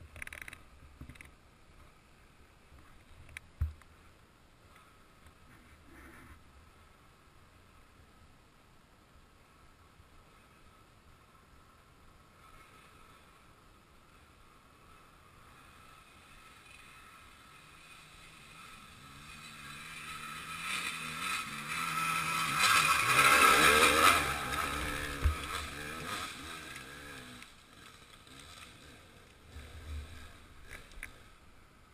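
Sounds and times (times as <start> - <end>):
motorcycle passing under throttle: 14.7 - 31.6.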